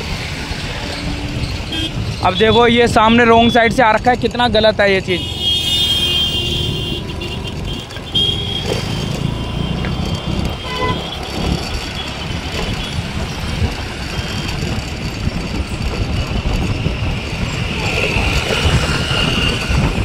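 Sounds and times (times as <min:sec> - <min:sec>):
passing traffic: 0:00.0 - 0:20.0
wind rumble on microphone: 0:09.9 - 0:20.0.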